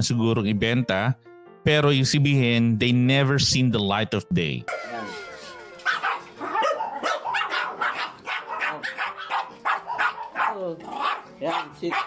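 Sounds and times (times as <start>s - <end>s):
dogs barking: 5.3s - 12.0s.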